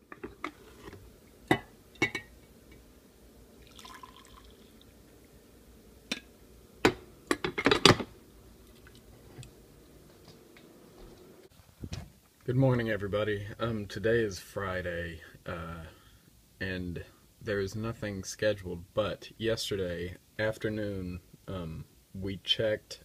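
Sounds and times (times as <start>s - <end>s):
coffee pouring into mug: 3.6s - 5.3s.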